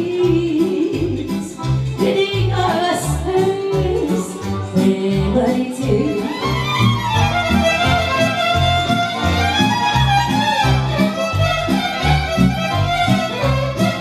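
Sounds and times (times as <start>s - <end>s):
accordion: 0.0s - 14.0s
violin melody: 5.8s - 14.0s.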